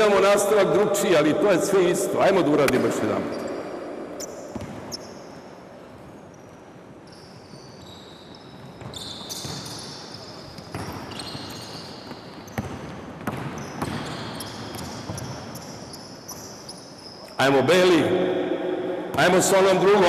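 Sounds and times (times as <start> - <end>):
sneakers squeaking on court floor: 2.7 - 17.4
ball bouncing: 4.1 - 5.1.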